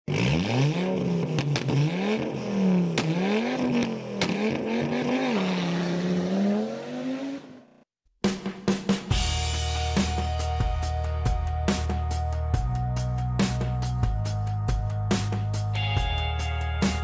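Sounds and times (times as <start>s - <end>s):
car engine revving: 0.1s - 7.8s.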